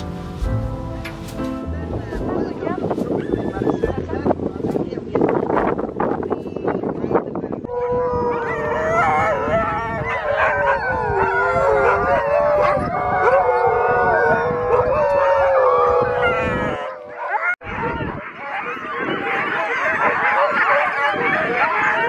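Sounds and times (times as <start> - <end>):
huskies howling and yelping: 7.7 - 22.0
dogs barking: 7.8 - 22.0.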